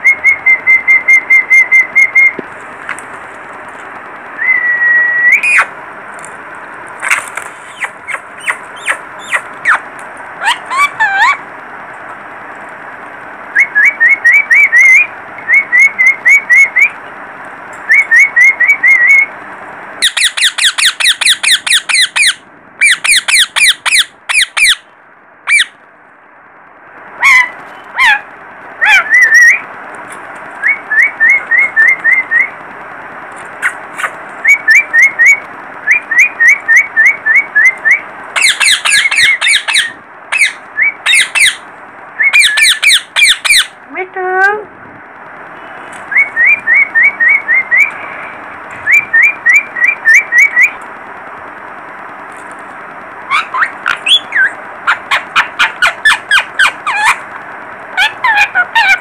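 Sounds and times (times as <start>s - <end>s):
parakeet chirping: 0.0s - 2.4s, 5.3s - 5.7s, 7.5s - 11.5s, 13.6s - 17.0s, 20.0s - 25.8s, 27.2s - 29.7s, 30.6s - 32.6s, 33.6s - 41.6s, 42.2s - 43.8s, 46.1s - 48.0s, 48.8s - 50.8s, 53.3s - 57.2s, 57.9s - 59.0s
steady background hiss: 0.0s - 59.0s
parakeet squawking: 5.3s - 5.7s, 7.6s - 11.5s, 20.0s - 25.8s, 27.2s - 29.6s, 33.6s - 41.6s, 42.2s - 43.8s, 53.3s - 57.2s, 57.9s - 59.0s.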